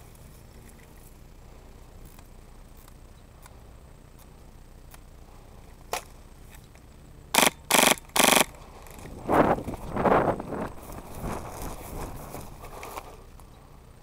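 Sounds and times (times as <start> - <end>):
airsoft gun rapid fire: 7.3 - 8.6.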